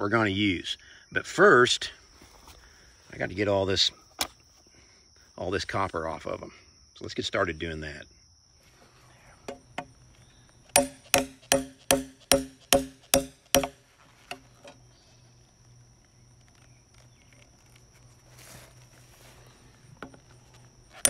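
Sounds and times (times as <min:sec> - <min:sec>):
hammer striking steel tool: 0:10.7 - 0:13.8.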